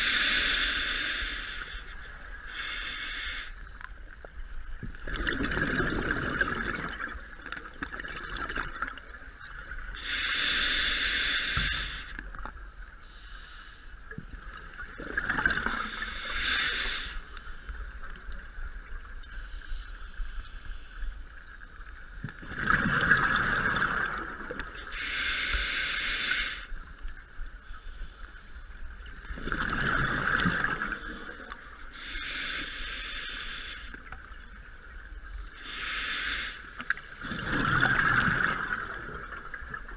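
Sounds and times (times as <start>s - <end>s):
regulator inhale hiss: 0.0s - 4.2s, 9.9s - 12.4s, 13.0s - 14.3s, 15.7s - 18.0s, 19.3s - 21.5s, 24.8s - 28.9s, 30.8s - 34.2s, 35.4s - 37.3s
exhaled bubbles underwater: 4.8s - 10.0s, 14.4s - 16.1s, 22.2s - 24.9s, 29.0s - 31.6s, 37.2s - 39.9s.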